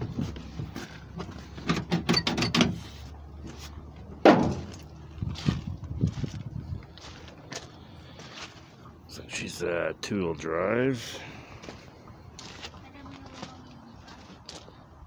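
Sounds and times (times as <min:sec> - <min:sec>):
car door clicking and rattling: 0:01.6 - 0:02.8.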